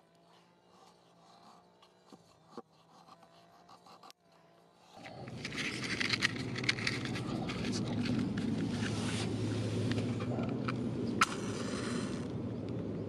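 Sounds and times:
knife shaving wood: 0.0 - 12.3
dense crackling rustle: 5.0 - 12.8.

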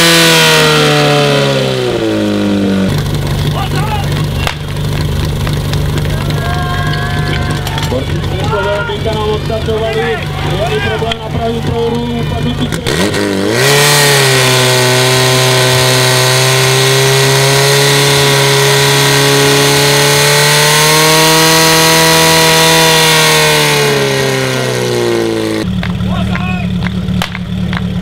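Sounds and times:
pump engine revving: 0.0 - 28.0.

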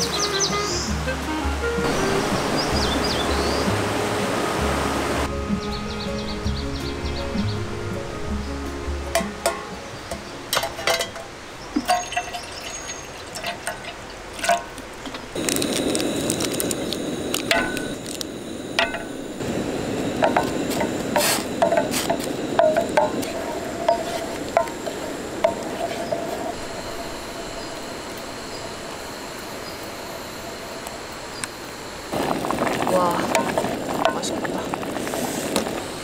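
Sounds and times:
cookware and utensils clinking: 9.1 - 15.4, 20.2 - 26.6, 32.8 - 34.9
liquid pouring: 11.8 - 18.3, 32.1 - 36.0.

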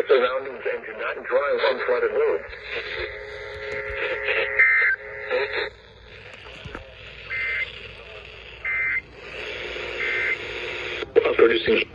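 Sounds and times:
faint radio hiss: 0.0 - 11.9
two-tone digital data bursts: 2.6 - 11.0.

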